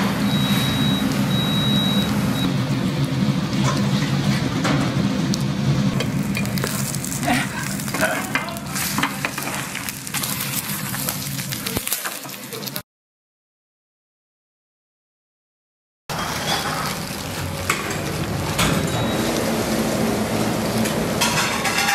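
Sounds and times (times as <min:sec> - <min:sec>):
batter sizzling in oil: 0:06.0 - 0:12.8, 0:16.1 - 0:21.9
spatula scraping pan: 0:06.3 - 0:12.4, 0:16.1 - 0:18.7.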